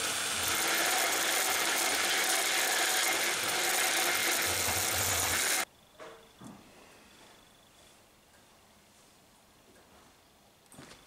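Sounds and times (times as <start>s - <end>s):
cordless drill boring steel: 0.0s - 5.7s.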